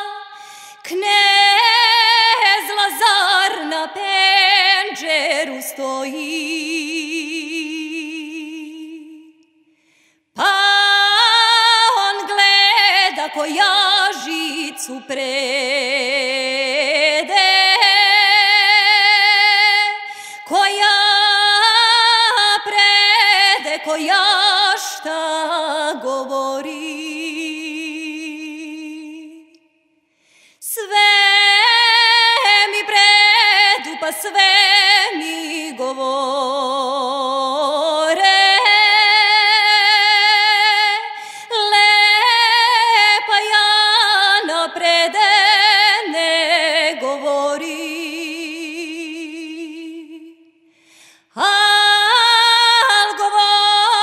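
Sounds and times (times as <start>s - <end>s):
woman singing folk song: 0.0s - 29.7s, 30.3s - 54.0s.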